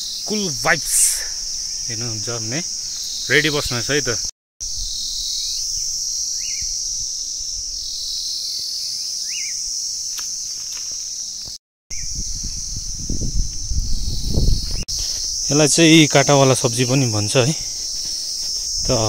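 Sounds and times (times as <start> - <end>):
insects chorus: 0.0 - 19.0
bird chirps: 7.9 - 9.6
wind rumble on microphone: 11.9 - 15.3.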